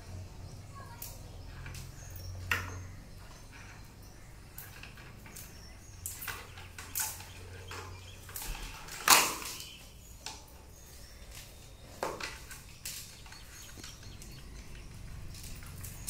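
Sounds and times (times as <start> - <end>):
clicks and knocks of handling: 4.5 - 16.0.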